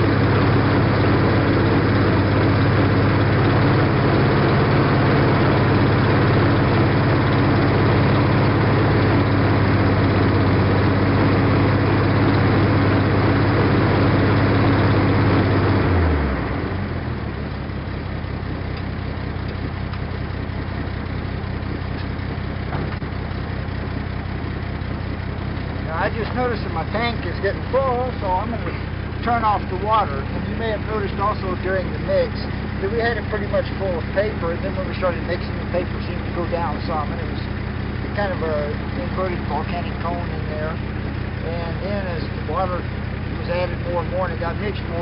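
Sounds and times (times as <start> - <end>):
truck engine running: 0.0 - 45.0.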